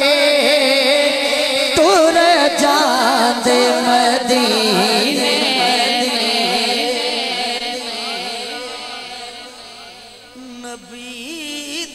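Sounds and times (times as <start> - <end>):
man singing long wavering notes: 0.0 - 11.9.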